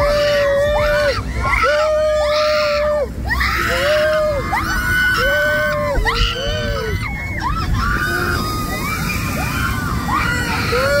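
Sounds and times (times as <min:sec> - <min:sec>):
people screaming and whooping: 0:00.0 - 0:11.0
steady rushing noise: 0:00.0 - 0:11.0.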